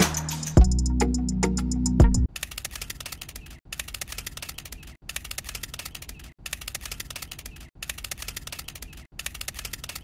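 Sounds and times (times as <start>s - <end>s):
rapid mechanical clicking: 2.3s - 10.0s.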